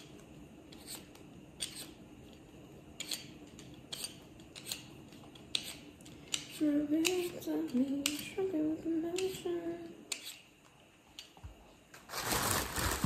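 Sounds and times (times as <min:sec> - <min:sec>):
potato peeling scrapes: 0:00.7 - 0:02.0, 0:03.0 - 0:07.4.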